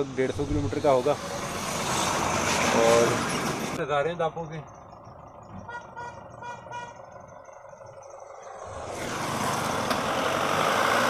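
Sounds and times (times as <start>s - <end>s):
car passing close: 0.5s - 3.8s, 8.5s - 11.0s
truck cab rumble: 2.5s - 10.8s.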